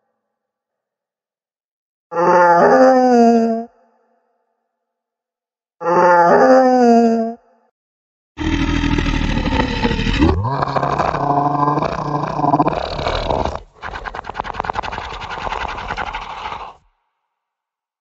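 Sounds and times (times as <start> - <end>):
ghostly wailing moan: 8.4 - 13.7
deep growling groan: 8.4 - 16.8
rapid rasping rattle: 11.9 - 16.8.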